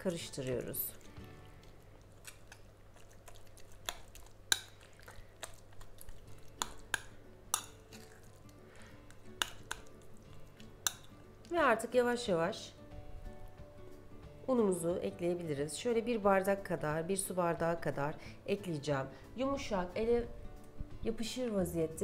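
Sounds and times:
faint background music: 0.0 - 22.0
metal spoon clinking ceramic bowl: 6.6 - 8.2.

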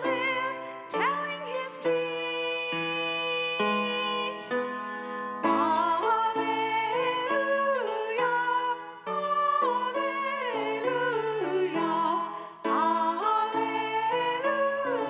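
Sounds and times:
woman singing into a microphone: 0.0 - 4.6.

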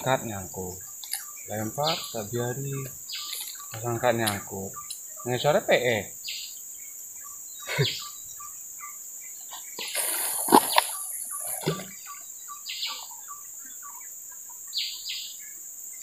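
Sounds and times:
short bird chirps: 7.6 - 14.0
high-pitched insect drone: 9.5 - 12.2
louder higher insect buzz: 9.8 - 12.0.

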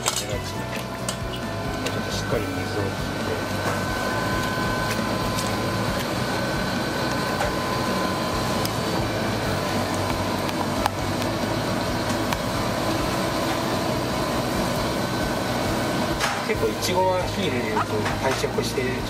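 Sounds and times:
metal utensils clicking: 0.0 - 1.4
faint high whines: 0.0 - 19.0
kitchen machinery hum: 0.0 - 19.0.

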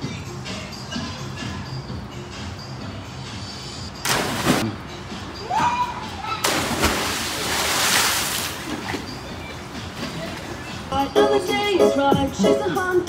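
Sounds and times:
heavy splash into pool: 4.0 - 4.7, 6.4 - 9.0
water spraying and churning: 6.4 - 9.3.

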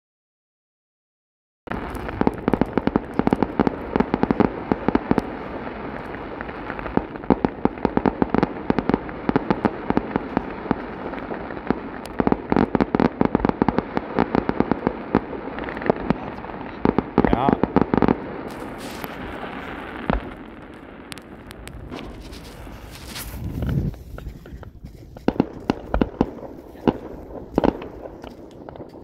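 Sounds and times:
fireworks popping and crackling: 1.7 - 29.0
fireworks hiss: 13.6 - 29.0.

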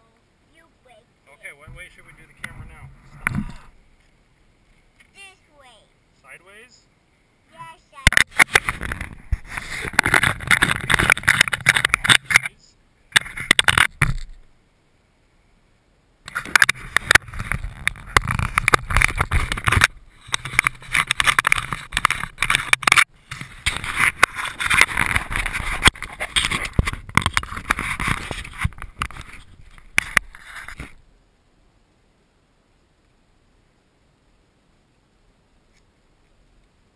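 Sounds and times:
sharp clicks and knocks: 8.0 - 12.5, 13.1 - 14.5, 16.3 - 31.0
camera handling rubbing and scraping: 8.1 - 12.5, 13.1 - 14.4, 16.3 - 31.0.

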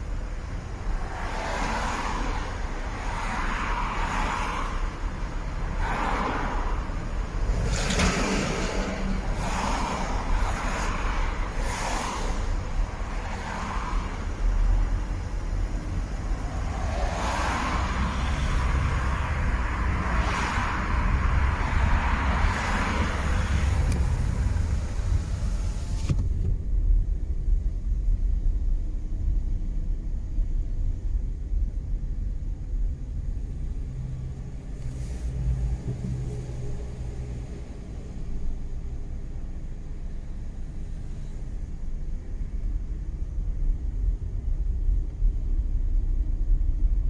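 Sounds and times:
low engine and road rumble: 0.0 - 47.0.

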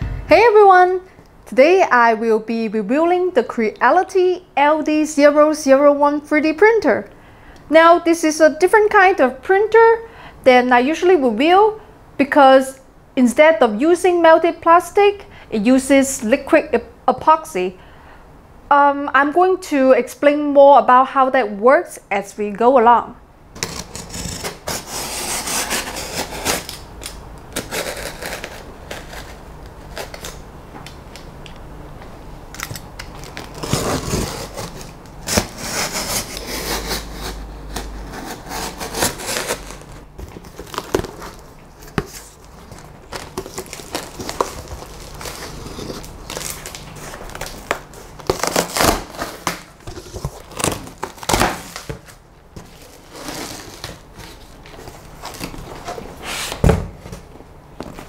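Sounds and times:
knife slitting cardboard box: 23.6 - 26.8, 33.5 - 39.9
rustling of packing: 39.1 - 58.0.

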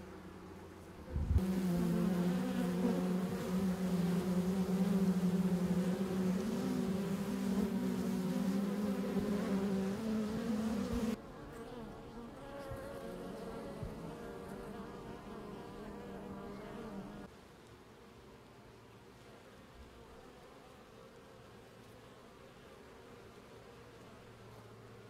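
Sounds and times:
bees buzzing: 1.2 - 17.3.

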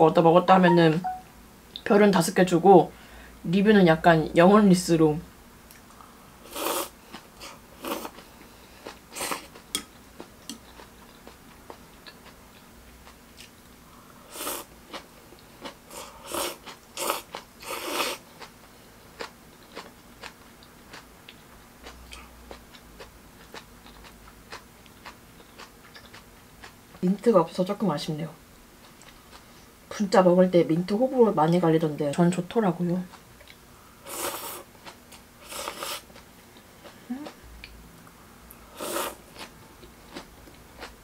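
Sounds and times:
chewing: 19.2 - 26.8, 39.0 - 41.0.

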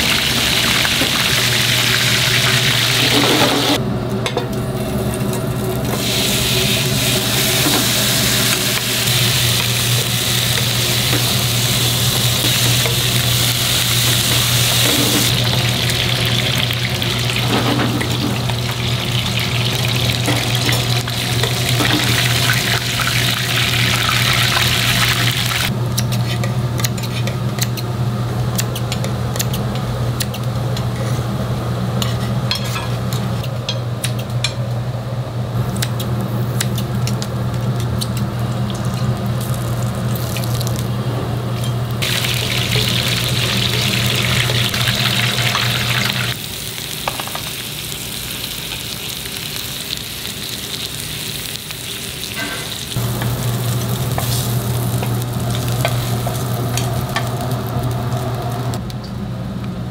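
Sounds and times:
meat sizzling on a pan: 42.0 - 58.7.

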